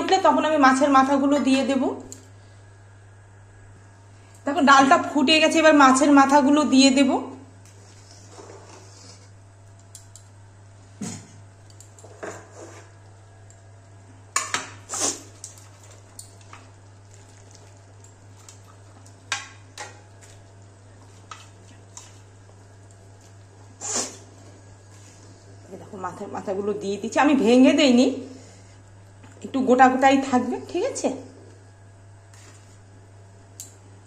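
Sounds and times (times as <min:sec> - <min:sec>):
thick liquid boiling: 0:07.6 - 0:09.6, 0:13.8 - 0:26.2.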